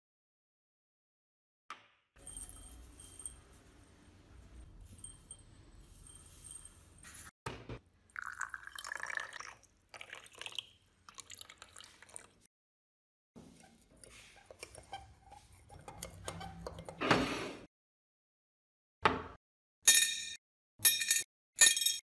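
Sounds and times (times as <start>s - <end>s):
metal rod clinking glass: 2.2s - 7.3s, 19.9s - 22.0s
liquid pouring into glass: 8.1s - 12.4s.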